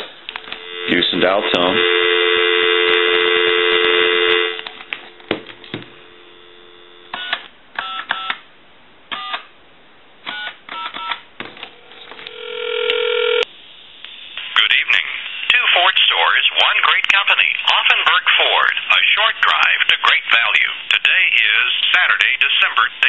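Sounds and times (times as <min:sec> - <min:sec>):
telephone ringing tone: 0:00.4 - 0:05.3, 0:12.2 - 0:13.5
telephone dial tone: 0:12.2 - 0:13.4.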